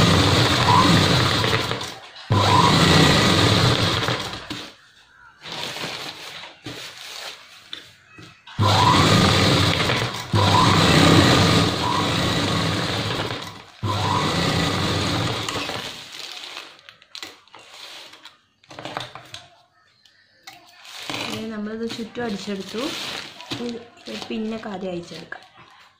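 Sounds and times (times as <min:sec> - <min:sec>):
sewing machine running: 0:00.0 - 0:04.7, 0:08.6 - 0:16.1.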